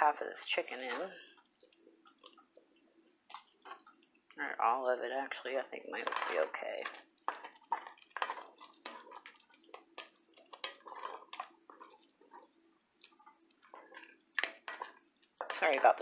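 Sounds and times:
wet squelching stirring: 0.0s - 16.0s
spoon knocking and scraping pot: 7.2s - 16.0s.

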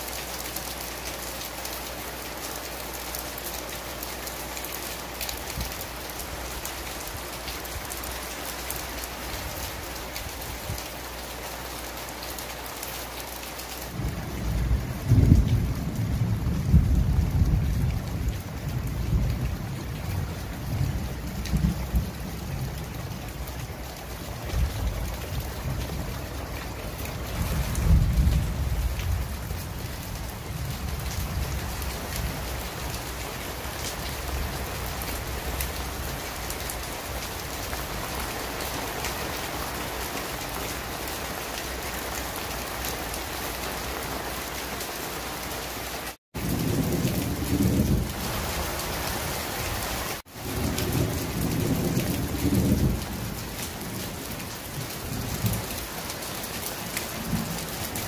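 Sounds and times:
heavy rain on leaves: 0.0s - 58.0s
thunder rumbling: 13.9s - 41.4s, 46.4s - 56.0s.

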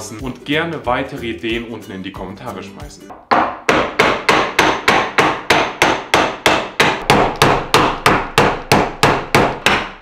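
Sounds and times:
hammer striking hatchet head: 3.1s - 10.0s.

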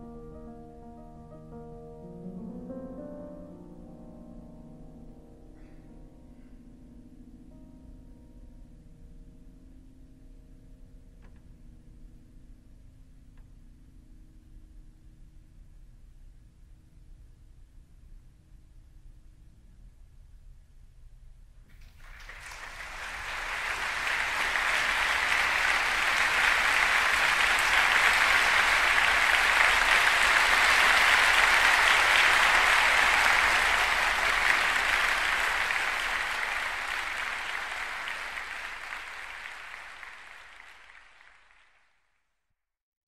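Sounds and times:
audience applauding: 21.7s - 41.9s.

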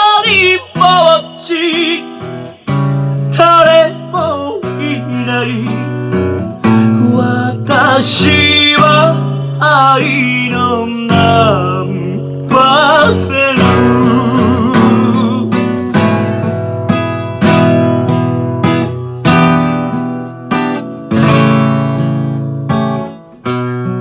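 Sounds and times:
acoustic guitar strummed chords: 0.0s - 24.0s.

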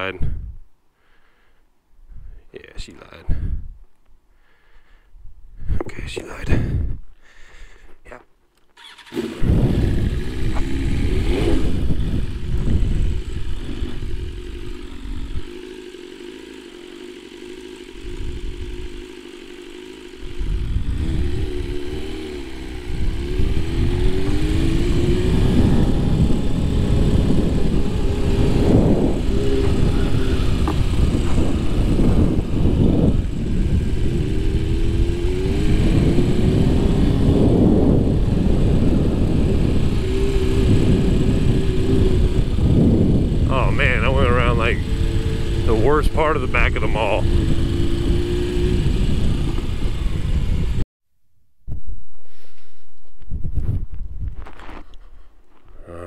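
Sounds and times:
motorcycle engine accelerating: 8.8s - 50.9s.

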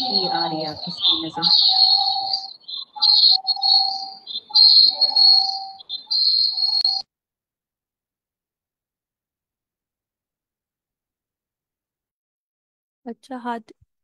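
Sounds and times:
high-pitched whistling tone: 0.0s - 7.0s.

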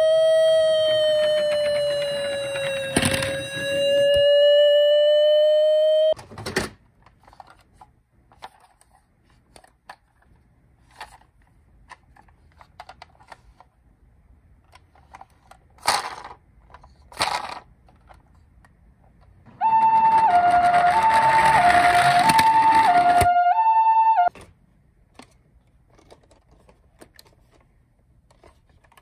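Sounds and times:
toy electronic siren: 0.0s - 6.2s, 19.6s - 24.3s
plastic toy clicks and rustles: 6.4s - 13.8s, 14.6s - 23.2s, 25.1s - 29.0s.

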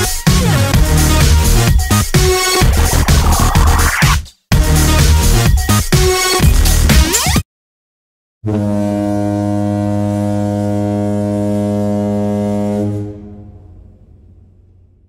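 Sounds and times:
deep foghorn blast: 8.4s - 14.9s.

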